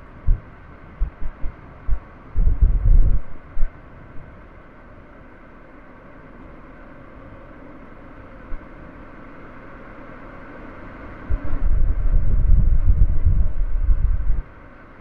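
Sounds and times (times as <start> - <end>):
wind buffeting: 0.0 - 3.7, 11.3 - 14.5.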